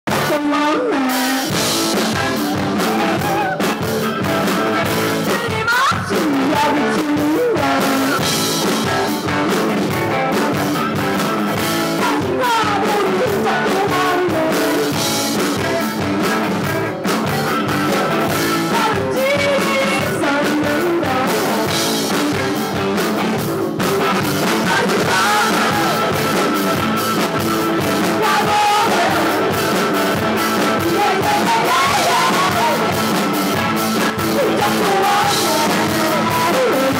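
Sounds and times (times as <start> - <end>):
electric guitar: 0.0 - 36.9
woman singing: 0.1 - 1.6, 5.2 - 8.2, 11.9 - 15.0, 18.5 - 21.8, 24.5 - 26.2, 28.0 - 29.6, 30.6 - 33.0, 34.2 - 36.9
live rock band playing: 0.1 - 36.9.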